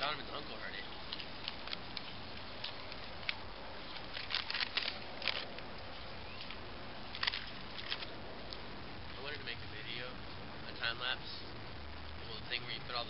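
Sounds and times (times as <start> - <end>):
background hiss: 0.0 - 13.0
chip bag crinkling: 1.0 - 5.6.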